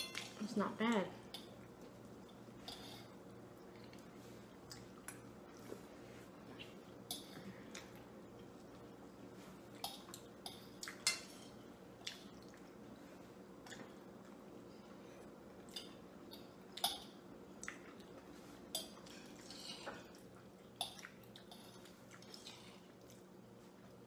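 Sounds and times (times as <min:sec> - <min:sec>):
forks clinking on plates: 0:00.0 - 0:00.4.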